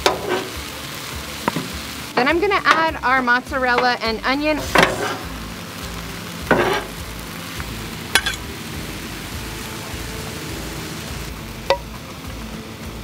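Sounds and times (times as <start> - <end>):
metal spatulas scraping: 0.0 - 0.6, 4.6 - 5.3, 6.5 - 7.0
food sizzling on griddle: 0.0 - 13.0.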